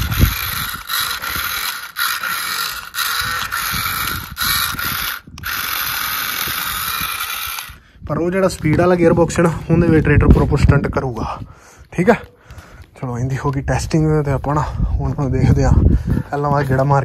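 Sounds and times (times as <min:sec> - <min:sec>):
toy tractor motor whirring: 0:00.0 - 0:07.8.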